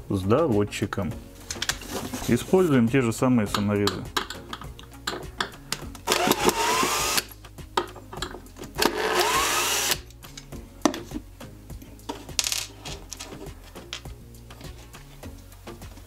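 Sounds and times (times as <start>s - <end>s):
cordless screwdriver motor whine: 6.1s - 7.3s, 8.9s - 10.0s.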